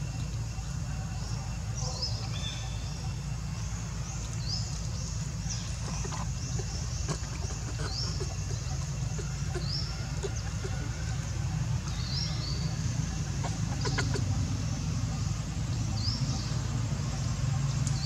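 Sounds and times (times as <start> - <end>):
bird chirping: 0.1 - 18.0
faint clicks: 17.7 - 18.0.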